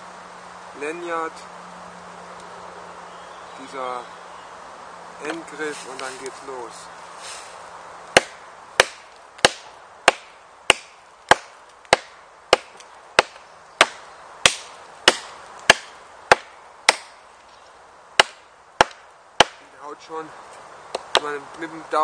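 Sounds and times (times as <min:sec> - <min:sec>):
knife chopping into log: 0:08.2 - 0:17.1, 0:18.2 - 0:19.6.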